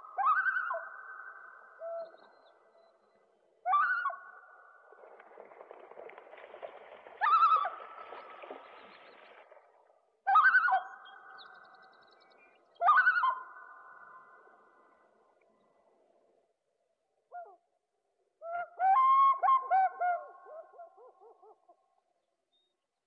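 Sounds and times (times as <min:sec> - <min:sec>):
echoing wavering bird calls: 0:00.0 - 0:04.9, 0:07.2 - 0:08.6, 0:10.3 - 0:15.1, 0:18.4 - 0:21.8.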